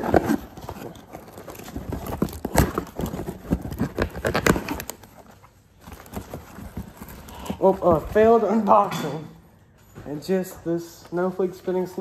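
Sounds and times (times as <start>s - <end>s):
boxes and packaging knocking: 0.0s - 4.9s.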